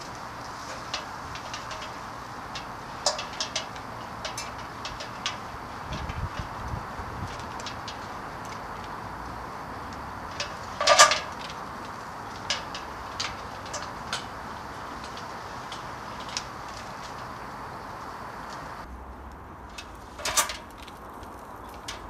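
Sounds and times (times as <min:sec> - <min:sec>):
outdoor background hiss: 0:00.0 - 0:22.0
metal clank: 0:00.7 - 0:06.5, 0:10.3 - 0:17.4.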